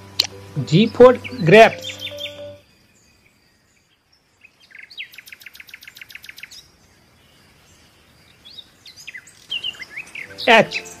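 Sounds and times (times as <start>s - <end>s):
bird trilling: 0.6s - 2.7s.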